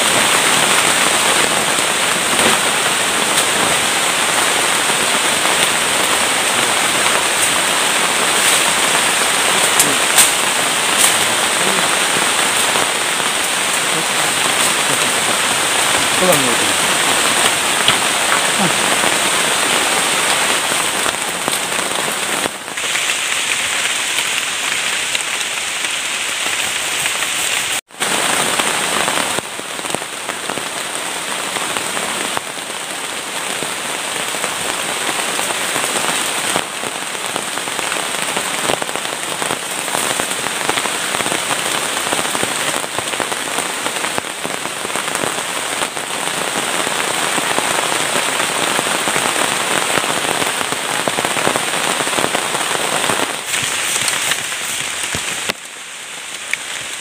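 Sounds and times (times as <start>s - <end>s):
heavy rain drumming on plastic tarp: 0.0s - 57.0s
rain on leaves: 0.0s - 57.0s.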